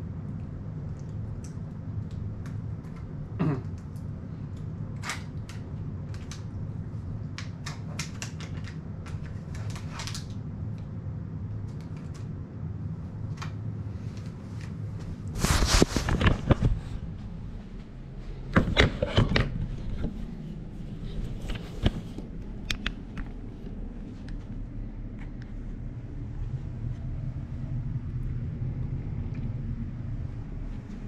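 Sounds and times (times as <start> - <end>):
low room hum: 0.0 - 31.0
camera rubbing and knocking: 15.3 - 17.1, 18.6 - 23.4.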